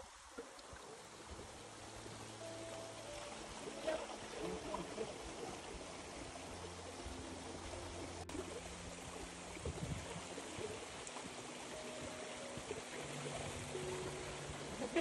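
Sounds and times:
steady rushing noise: 5.0s - 15.0s.

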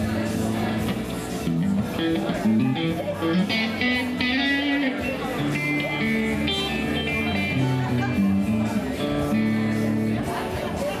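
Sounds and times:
band playing live: 0.0s - 11.0s
bass line: 0.0s - 11.0s
electric guitar notes: 0.8s - 10.0s.

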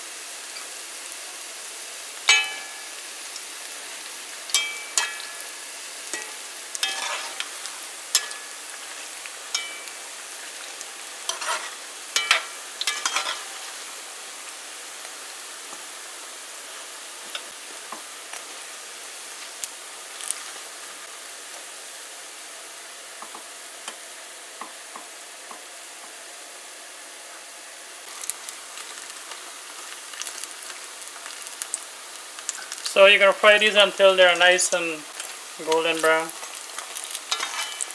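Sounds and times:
food sizzling in hot oil: 0.0s - 37.9s
metal spoon clinking and scraping pot: 4.5s - 5.4s, 6.1s - 8.5s, 9.5s - 9.9s, 11.3s - 13.5s, 37.3s - 37.9s.

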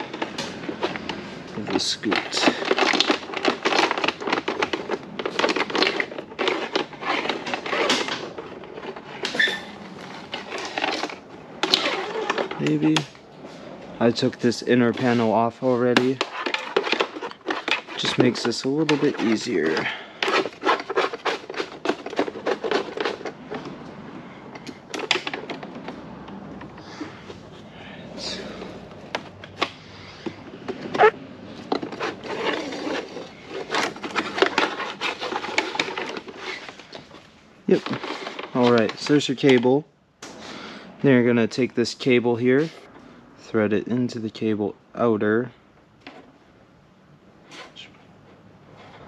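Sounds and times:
cable clicking and rattling in plastic: 0.0s - 13.1s, 14.5s - 23.8s, 24.6s - 26.8s, 29.1s - 39.7s
short squeak: 9.3s - 9.8s.

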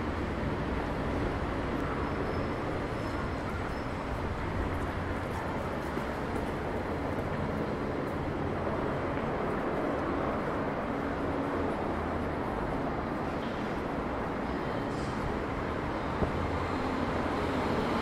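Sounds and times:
vehicle traffic rumble: 0.0s - 18.0s.

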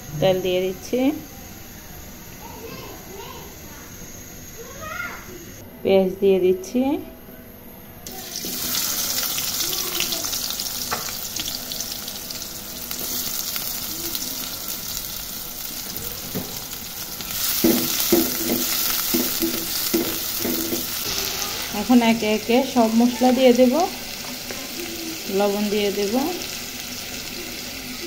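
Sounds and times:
onions sizzling in oil: 8.0s - 28.0s.

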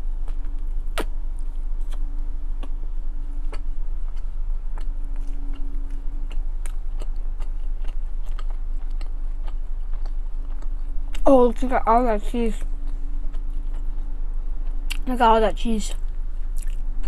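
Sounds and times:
steady low hum: 0.0s - 17.0s
wet mouth clicks chewing: 3.4s - 11.2s, 14.7s - 15.0s, 16.5s - 16.9s.

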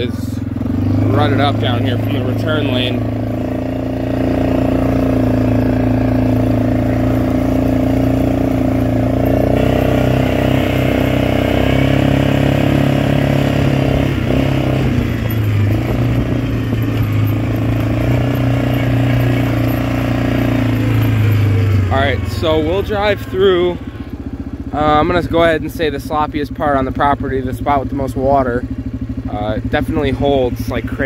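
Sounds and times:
atv engine running: 0.0s - 31.0s.

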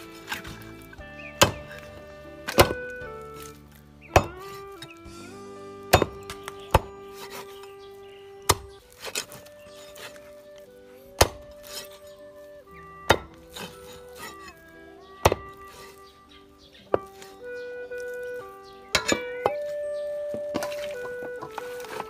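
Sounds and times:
background music: 0.0s - 22.0s
cleaver chopping through bone: 1.3s - 4.8s, 5.9s - 7.7s, 8.4s - 10.4s, 11.2s - 12.1s, 13.0s - 14.6s, 15.2s - 16.0s.

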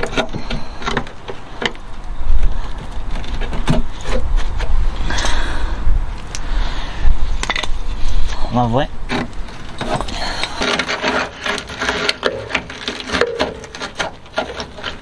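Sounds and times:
tool scraping rusted metal: 0.0s - 5.4s, 9.0s - 15.0s
low rumble: 1.8s - 10.6s.

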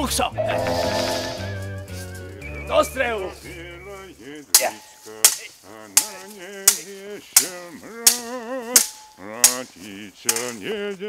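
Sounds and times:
wavering voice-like sound: 0.3s - 2.0s
swords clashing: 8.1s - 9.6s.

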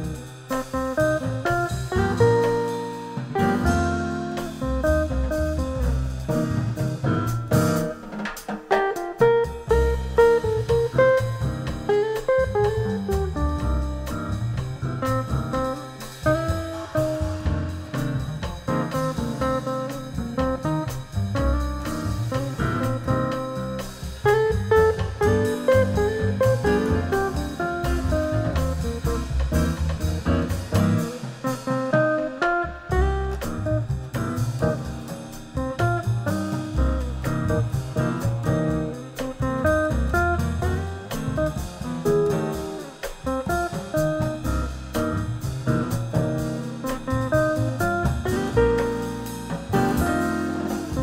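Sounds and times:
electric guitar melody: 0.0s - 8.0s, 8.7s - 51.0s
upright bass: 0.0s - 8.0s, 8.7s - 51.0s
drums: 0.0s - 51.0s
jazz quartet music: 0.0s - 51.0s
cymbal beat: 32.9s - 51.0s.

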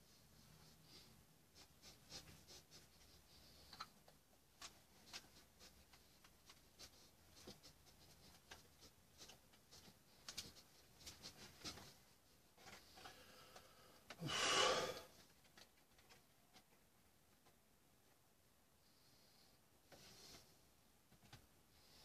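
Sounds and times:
paintbrush scratching and tapping: 0.1s - 13.2s.

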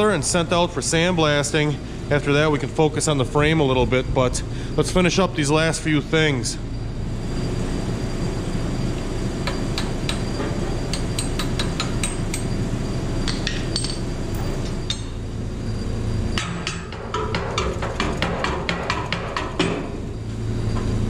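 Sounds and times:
steady low hum: 0.0s - 21.0s
hammer tapping on steel: 10.9s - 12.5s.

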